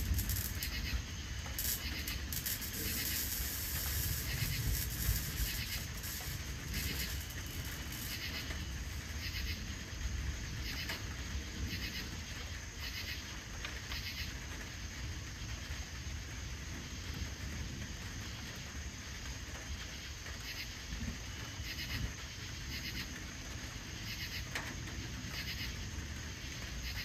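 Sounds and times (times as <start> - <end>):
steady low rumble: 0.0 - 12.7
crickets chirping: 0.0 - 27.0.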